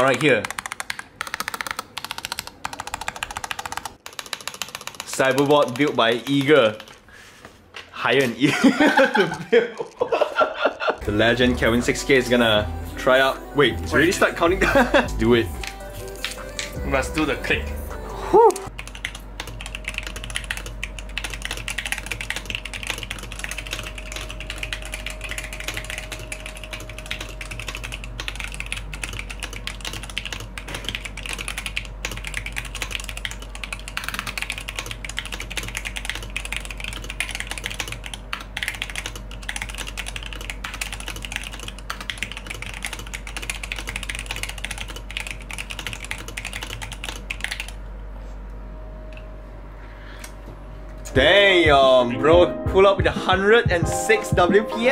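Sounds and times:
mechanical keyboard typing: 0.0 - 7.0, 18.6 - 47.8.

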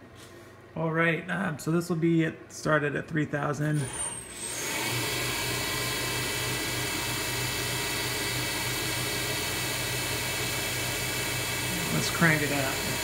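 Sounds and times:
mill spindle humming: 4.3 - 13.0.

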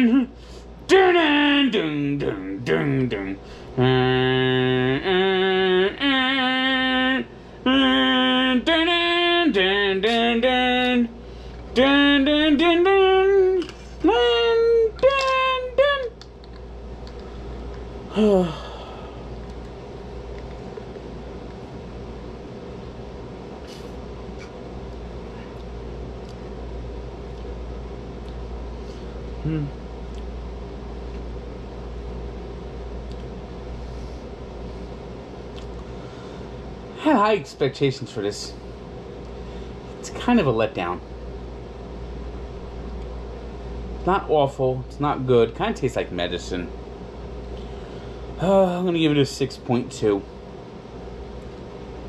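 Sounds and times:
man singing wordless tune: 0.0 - 16.2
low mechanical hum: 0.0 - 52.0.

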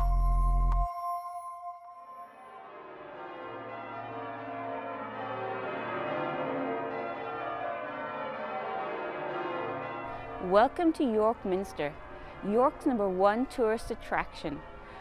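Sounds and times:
church bells pealing: 0.0 - 15.0.

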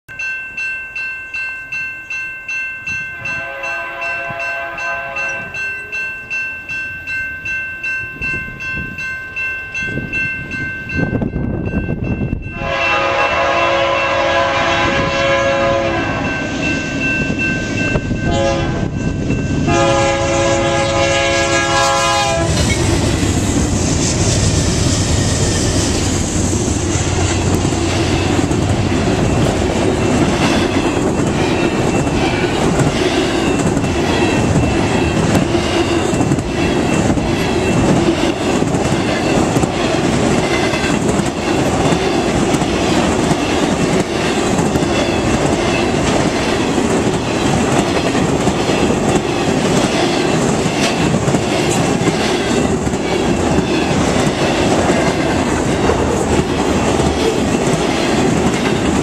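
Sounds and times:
crossing bell ringing: 0.1 - 23.7, 25.4 - 59.0
locomotive horn: 3.2 - 5.6, 12.5 - 16.4, 18.2 - 19.0, 19.6 - 22.8
locomotive engine rumbling: 12.6 - 59.0
train wheels clacking on rail joints: 16.2 - 59.0.

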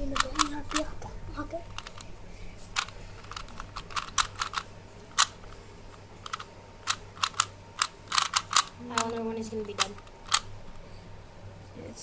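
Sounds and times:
puzzle cube clicking: 0.0 - 0.9, 1.7 - 2.1, 2.7 - 10.5.

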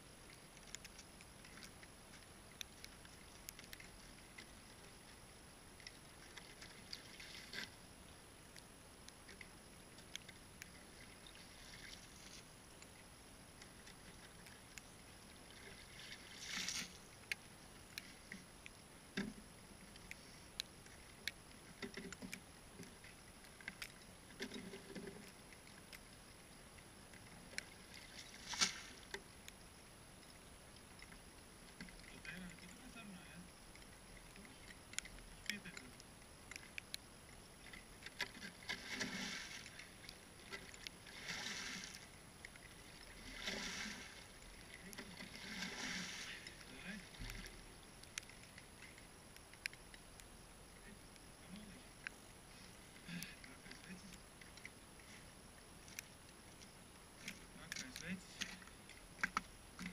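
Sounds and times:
water splash: 15.5 - 17.0, 27.9 - 29.1, 38.4 - 39.8, 40.5 - 42.1, 42.9 - 46.5.

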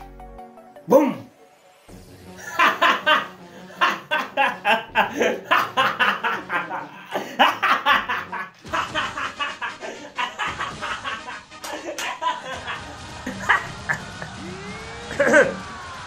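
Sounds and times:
man laughing: 2.3 - 14.4, 15.1 - 15.6.

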